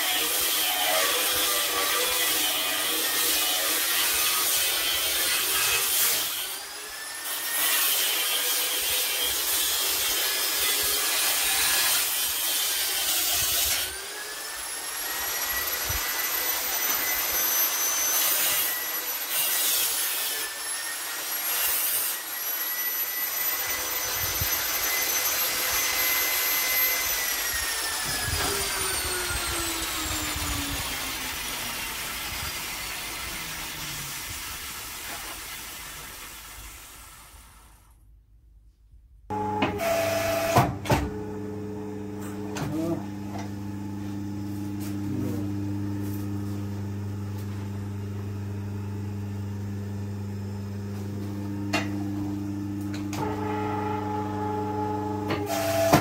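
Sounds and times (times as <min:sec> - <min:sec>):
angle grinder motor whine: 0:22.2 - 0:34.5, 0:39.3 - 0:56.0.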